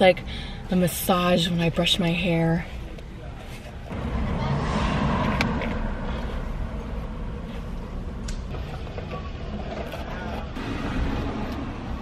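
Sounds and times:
low vehicle rumble: 0:03.8 - 0:09.7.

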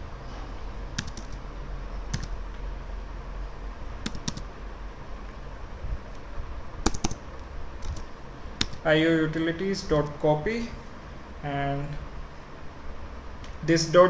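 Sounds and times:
low steady hum: 0:00.0 - 0:14.0
computer keyboard keystrokes: 0:01.0 - 0:01.4, 0:02.1 - 0:02.4, 0:04.0 - 0:04.4, 0:06.8 - 0:07.2, 0:07.8 - 0:08.8.

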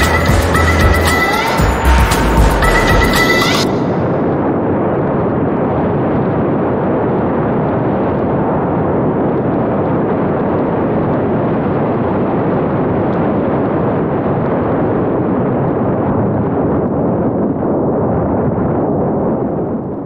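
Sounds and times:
wind rushing over microphone: 0:01.4 - 0:20.0.

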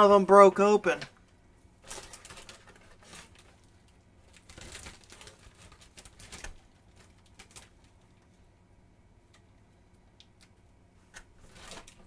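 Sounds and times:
plastic bag crinkling: 0:01.8 - 0:08.2, 0:11.3 - 0:12.0.

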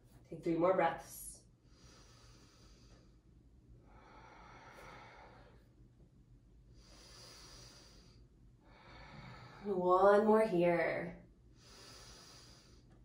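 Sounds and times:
slow breathing: 0:01.6 - 0:05.9, 0:06.6 - 0:09.8, 0:11.5 - 0:13.0.

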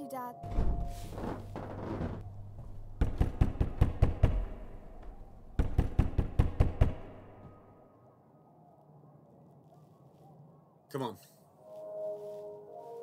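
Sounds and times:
heavy knocks: 0:00.4 - 0:07.3.

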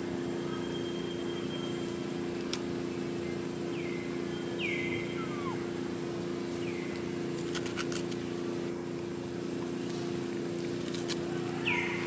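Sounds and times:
low motor hum: 0:00.0 - 0:12.0
short falling whistle-like call: 0:04.9 - 0:05.6.

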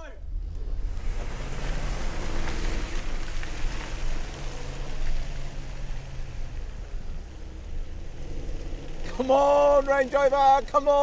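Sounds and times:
engine drone accelerating: 0:00.2 - 0:10.1
mud pattering and hissing: 0:00.8 - 0:09.4.

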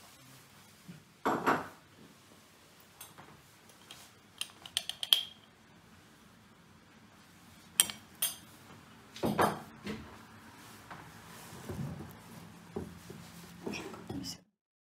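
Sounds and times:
kitchenware clinking: 0:03.0 - 0:05.6, 0:07.8 - 0:08.6, 0:09.2 - 0:09.7.

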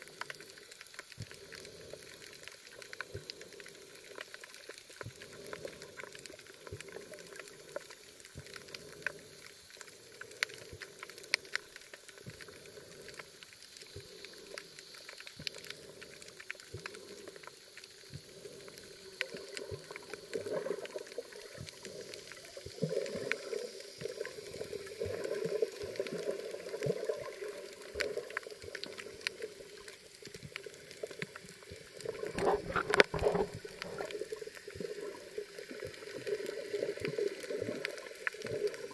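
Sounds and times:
sharp underwater clicks: 0:26.0 - 0:38.9
muffled underwater rush: 0:30.5 - 0:38.9.

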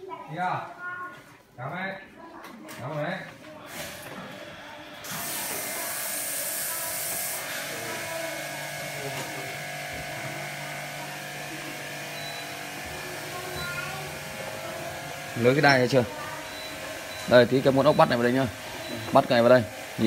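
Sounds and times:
small electric motor buzzing: 0:03.6 - 0:20.0
hiss: 0:05.1 - 0:07.7.

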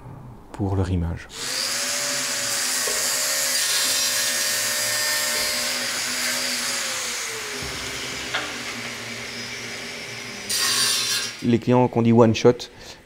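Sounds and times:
radial arm saw cutting panel: 0:01.4 - 0:11.5.

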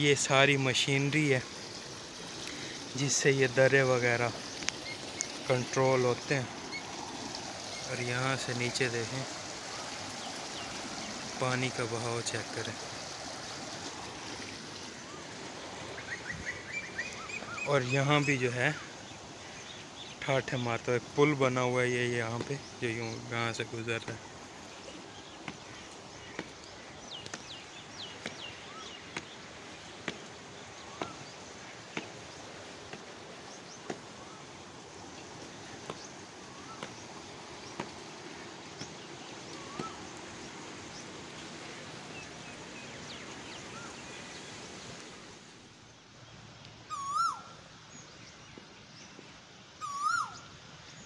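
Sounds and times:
fast-flowing water rushing: 0:00.0 - 0:45.7
birds chirping: 0:00.0 - 0:51.0
bird hooked call: 0:39.6 - 0:40.1, 0:46.9 - 0:47.5, 0:49.8 - 0:50.4.

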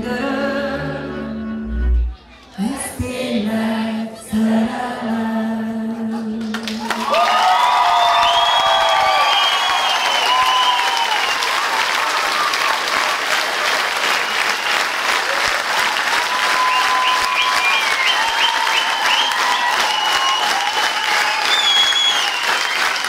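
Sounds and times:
audience applauding: 0:06.5 - 0:23.0
crowd voices and whistles: 0:07.9 - 0:12.5, 0:14.1 - 0:15.0, 0:16.2 - 0:23.0.

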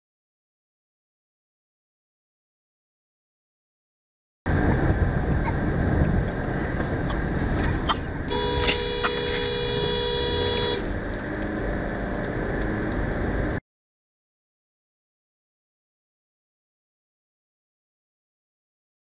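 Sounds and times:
road and tyre noise: 0:04.5 - 0:13.6
car horn: 0:08.3 - 0:10.9.

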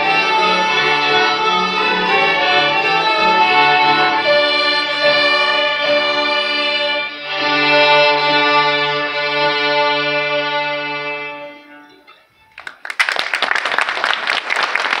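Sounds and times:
violin and cello ensemble chord: 0:00.0 - 0:12.0
audience applauding: 0:12.5 - 0:15.0.

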